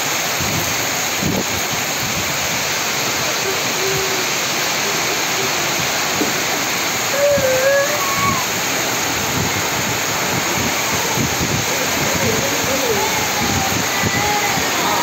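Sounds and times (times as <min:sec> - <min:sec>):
heavy rain pouring: 0:00.0 - 0:15.0
brief wavering call: 0:07.1 - 0:08.6.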